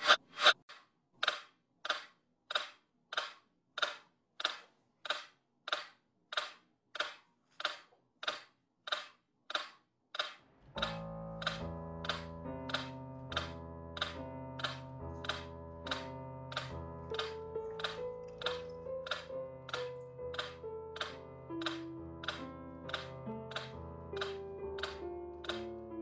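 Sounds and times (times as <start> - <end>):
music with held notes: 10.8 - 26.0.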